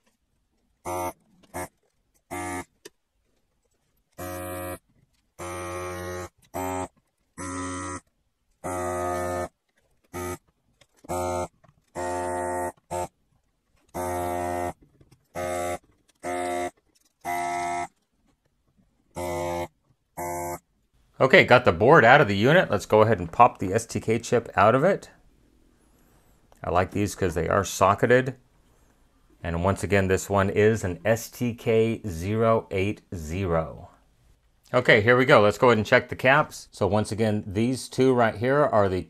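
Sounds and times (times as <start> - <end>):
desoldering pump buzzing: 0.8 - 2.8, 4.1 - 13.2, 13.9 - 18.0, 19.1 - 20.7.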